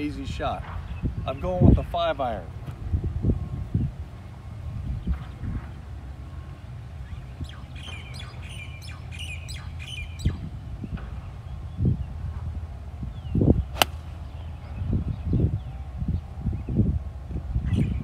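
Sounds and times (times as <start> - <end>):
wind rumbling on microphone: 0.0 - 18.0
birds chirping: 4.9 - 12.3, 13.0 - 16.8
golf club striking ball: 13.7 - 14.4.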